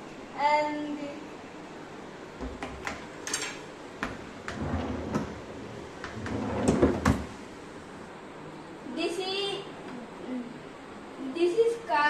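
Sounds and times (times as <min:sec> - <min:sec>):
cabinet clicks and knocks: 0:06.1 - 0:07.3.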